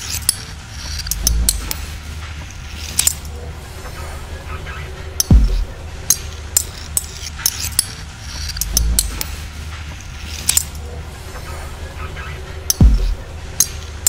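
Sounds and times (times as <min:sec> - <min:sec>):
sharp metallic clicks and clinks: 0:00.0 - 0:03.4, 0:05.2 - 0:10.9
steady low hum: 0:00.0 - 0:14.0
low rumbling swell: 0:01.0 - 0:14.0.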